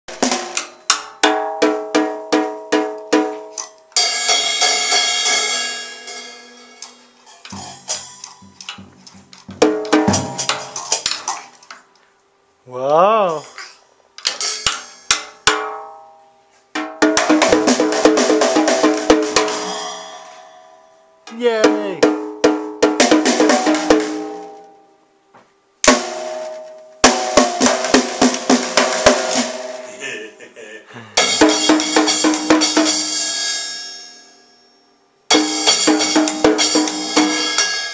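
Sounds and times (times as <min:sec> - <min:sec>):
drum hits with sticks: 0:00.1 - 0:03.5, 0:07.5 - 0:11.2, 0:16.8 - 0:20.0, 0:21.3 - 0:24.5, 0:25.8 - 0:29.9, 0:31.2 - 0:33.2, 0:35.3 - 0:37.7
cymbal crash ringing: 0:19.4 - 0:21.2.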